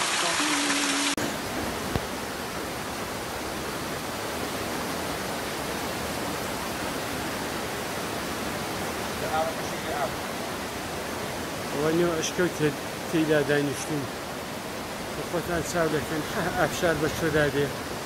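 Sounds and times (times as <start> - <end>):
water splashing down rock face: 0.0 - 1.2
steady even hiss: 6.4 - 17.9.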